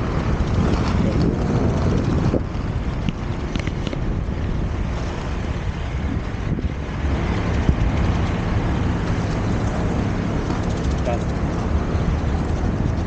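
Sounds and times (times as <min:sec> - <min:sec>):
skate wheels rolling on pavement: 0:00.0 - 0:13.0.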